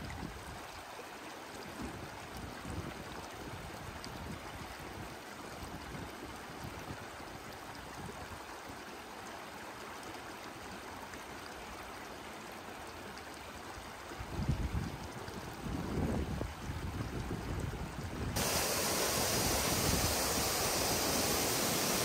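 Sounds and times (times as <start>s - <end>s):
steady rushing noise: 18.4s - 22.0s.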